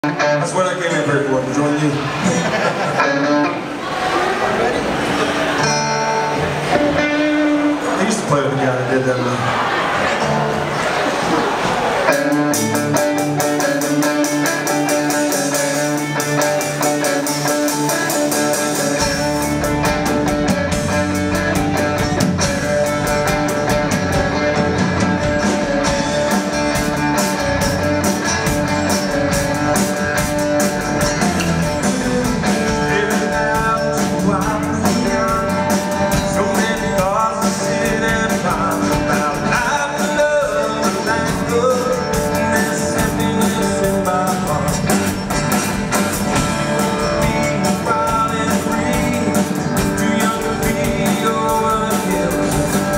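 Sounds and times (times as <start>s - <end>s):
live rock band playing: 0.0s - 52.9s
man singing: 31.8s - 45.2s, 46.4s - 52.9s.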